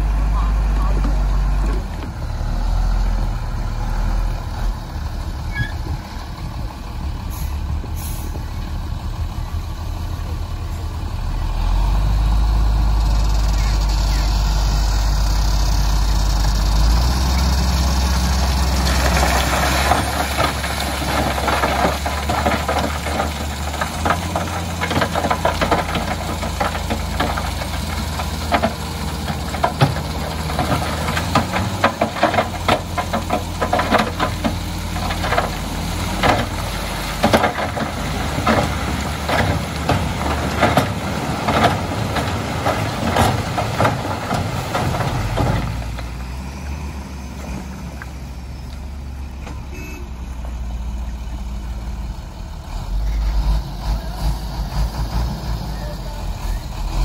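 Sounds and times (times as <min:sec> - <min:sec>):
diesel truck engine running: 0:00.0 - 0:57.0
crushed rock clattering: 0:18.6 - 0:46.4.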